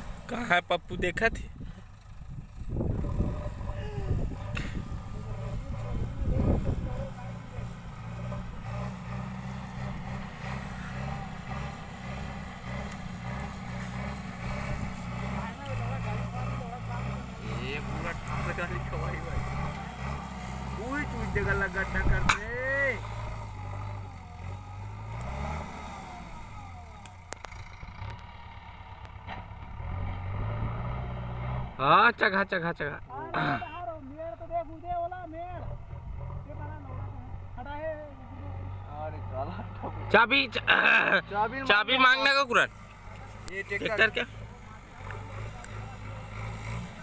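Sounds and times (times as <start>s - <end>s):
diesel engine running under load: 0.0s - 47.0s
loader bucket pushing soil: 4.5s - 28.4s
sharp clicks: 27.0s - 28.3s.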